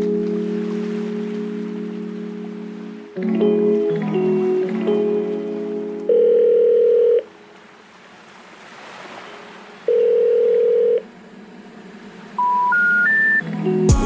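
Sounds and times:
telephone ringing tone: 6.1 - 7.3, 9.9 - 11.0
three rising telephone tones: 6.1 - 7.3, 9.9 - 11.0, 12.4 - 13.5.

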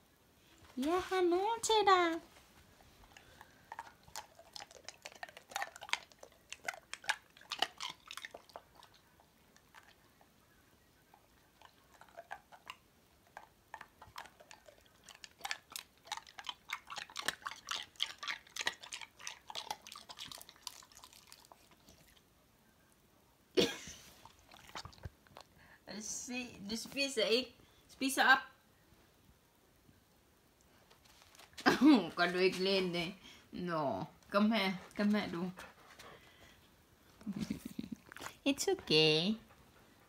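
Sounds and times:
dog crunching ice cubes: 3.2 - 9.1, 11.6 - 21.9.

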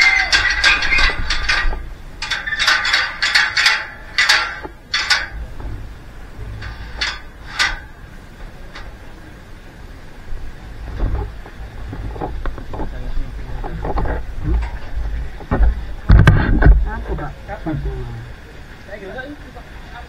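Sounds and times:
metal ladder clanking: 0.0 - 9.0.

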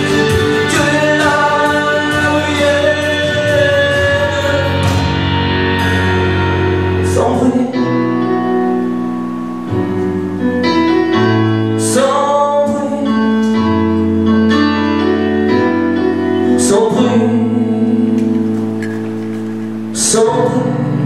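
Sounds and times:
man singing: 0.0 - 5.7, 7.0 - 8.6, 11.7 - 14.1, 16.4 - 18.8, 19.9 - 21.0
sustained keyboard chords: 0.0 - 21.0.

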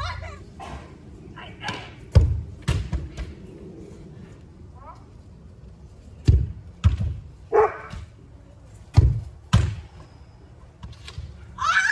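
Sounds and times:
ball kicked thud: 8.9 - 9.9.

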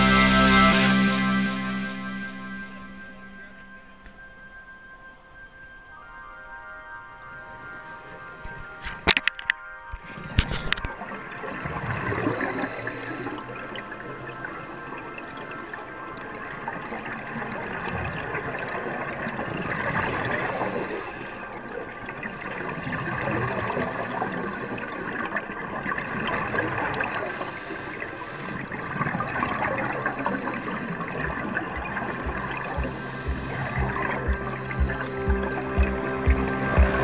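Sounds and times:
underwater bubbling and rushing water: 7.0 - 37.0.

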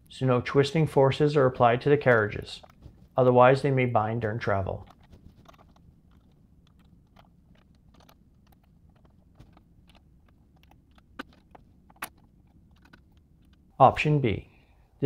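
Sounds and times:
hex key turning screws: 4.8 - 13.7.

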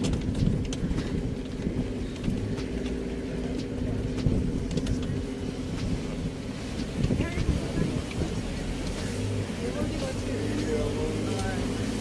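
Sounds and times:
knocks and rattles: 0.0 - 6.0
vehicle engine running: 0.0 - 12.0.

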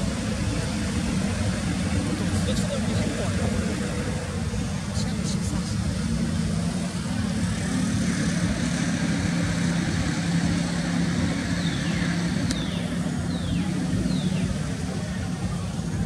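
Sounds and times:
motor engine humming: 0.0 - 16.0.

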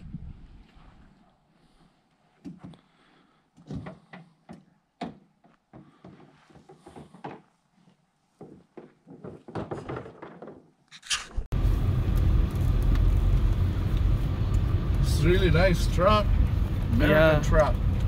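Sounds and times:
irregular knocks and thuds: 3.6 - 7.6, 8.4 - 10.9
low vehicle rumble: 11.4 - 18.0.

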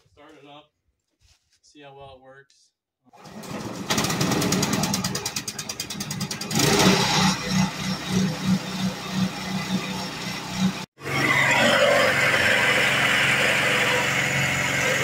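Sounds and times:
small engine running: 3.2 - 15.0.

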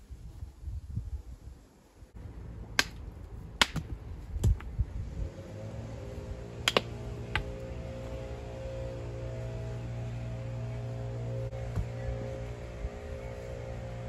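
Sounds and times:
stones clacking: 3.6 - 4.7, 6.7 - 7.5.

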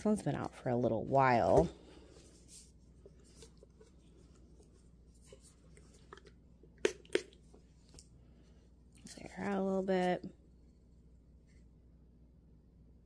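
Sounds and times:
plastic bottle handling: 1.4 - 8.0.

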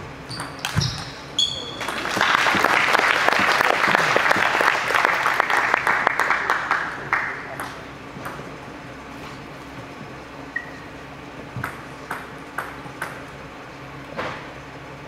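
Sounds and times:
spectators clapping: 1.8 - 7.8.

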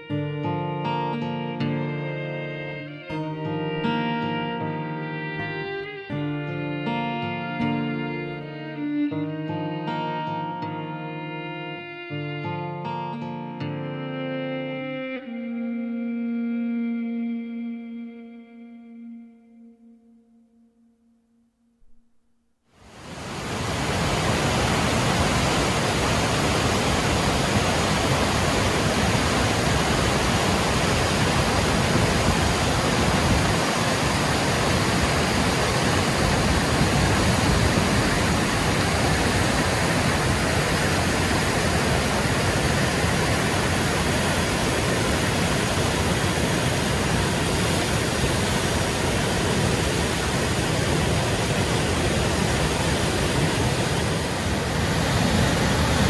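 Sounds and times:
water rushing over rocks: 22.8 - 56.0.

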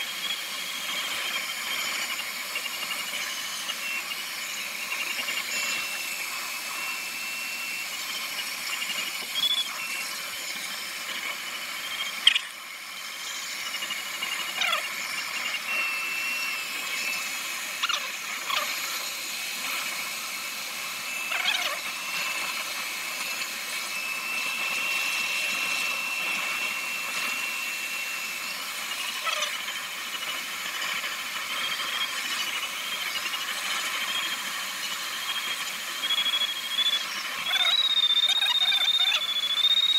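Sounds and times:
airflow hissing around cockpit: 0.0 - 31.9
thin steady high tone: 0.0 - 39.9.

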